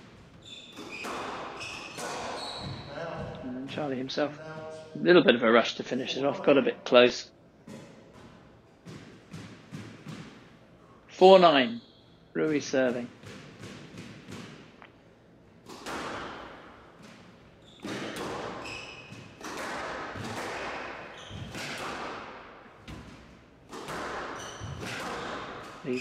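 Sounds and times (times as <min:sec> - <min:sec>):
shoes squeaking on wooden floor: 0:00.0 - 0:04.8, 0:17.6 - 0:19.4, 0:21.1 - 0:21.6, 0:24.3 - 0:26.0
squash ball thuds: 0:07.6 - 0:10.5, 0:12.5 - 0:14.9, 0:15.6 - 0:26.0.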